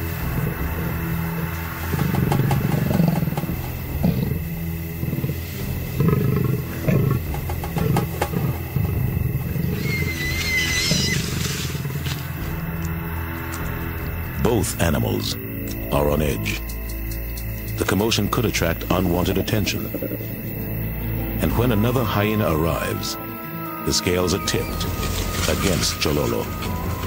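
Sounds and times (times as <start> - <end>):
leopard and hyena growling: 0.0 - 27.0
low music drone: 0.0 - 27.0
high wavering cry: 9.7 - 11.3.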